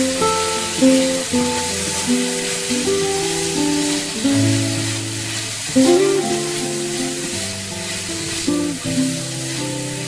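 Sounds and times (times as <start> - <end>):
food sizzling in a frying pan: 0.0 - 10.0
spatula stirring in a pan: 0.4 - 10.0.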